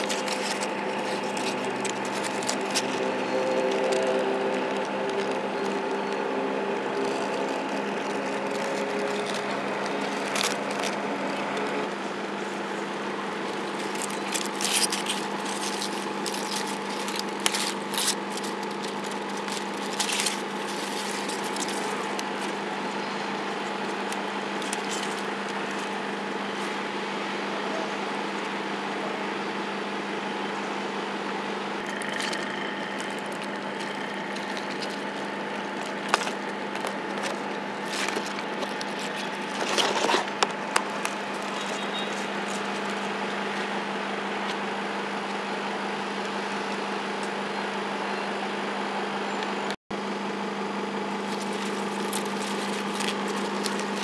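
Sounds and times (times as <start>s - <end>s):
machine hum with two tones: 0.0s - 54.0s
short clicks and rustles: 13.5s - 22.6s, 51.2s - 54.0s.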